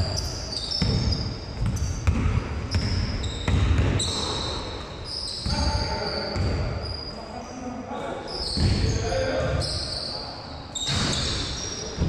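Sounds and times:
shoes squeaking on floor: 0.0 - 7.5, 8.2 - 12.0
basketball bouncing: 0.8 - 4.1.

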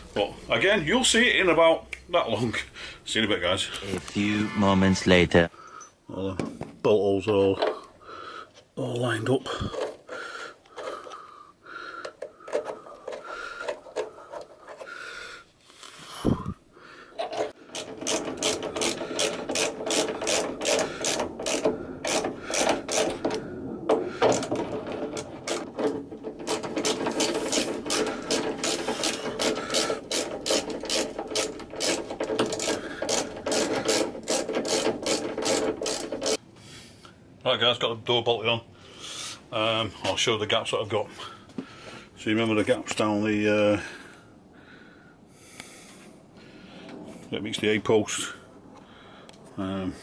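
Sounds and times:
socket ratchet wrench clicking: 17.8 - 23.2.

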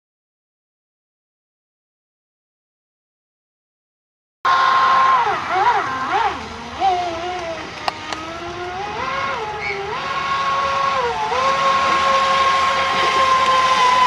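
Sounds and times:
boat motors whining: 4.5 - 14.0.

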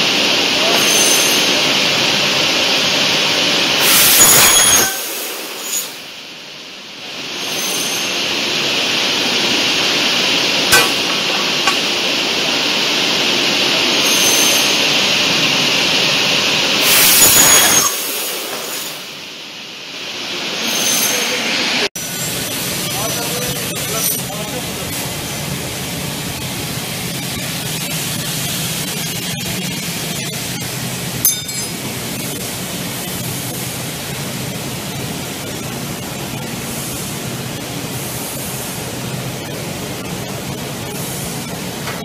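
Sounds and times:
cutting saw high whine: 7.4 - 8.3
saw blade cutting aluminium: 10.7 - 12.0, 31.2 - 32.4.

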